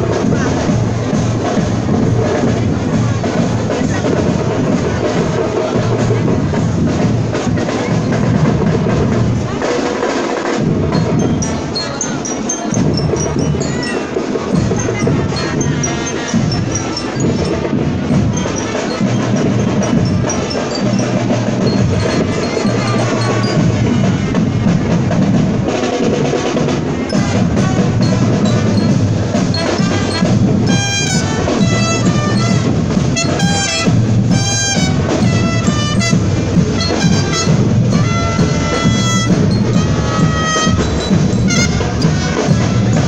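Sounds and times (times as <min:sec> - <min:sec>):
marching band playing: 0:00.0 - 0:43.0
bell-like glockenspiel melody: 0:10.8 - 0:24.8, 0:27.1 - 0:43.0.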